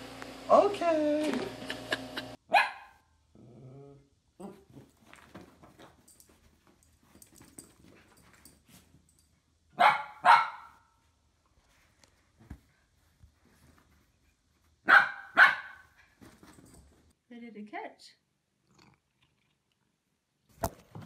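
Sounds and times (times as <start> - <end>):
dog barking: 2.5 - 3.1, 9.8 - 10.9, 14.8 - 15.9.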